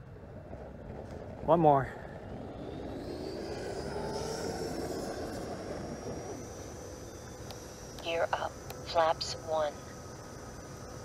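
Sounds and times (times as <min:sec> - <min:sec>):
electric ducted fan whine: 0:00.0 - 0:11.0.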